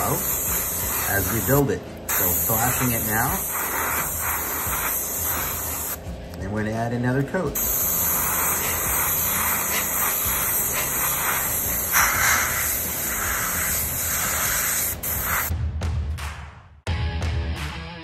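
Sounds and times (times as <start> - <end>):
airbrush hissing: 0.0 - 6.1, 7.6 - 15.5.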